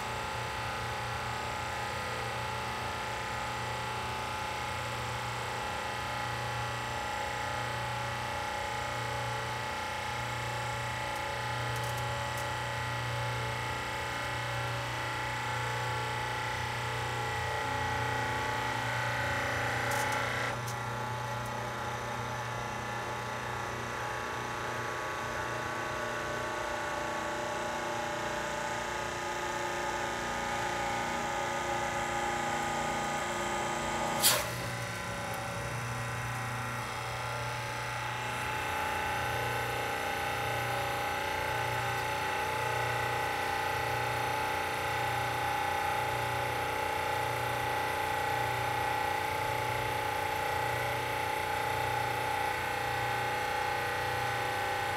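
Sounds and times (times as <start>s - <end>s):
hydraulic pump motor humming: 16.8s - 22.2s, 28.8s - 45.0s.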